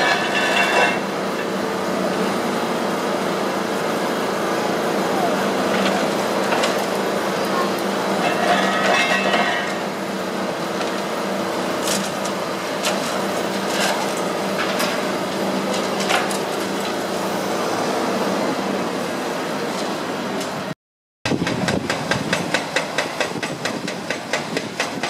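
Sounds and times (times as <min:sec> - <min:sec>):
excavator running: 0:00.0 - 0:20.7
sharp knocks and clanks: 0:08.2 - 0:09.8, 0:21.3 - 0:25.0.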